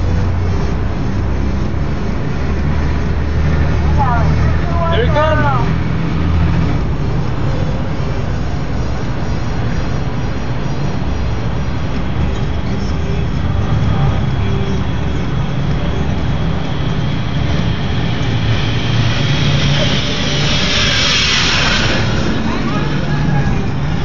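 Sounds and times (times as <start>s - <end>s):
low traffic rumble: 0.0s - 24.0s
hiss: 17.3s - 24.0s.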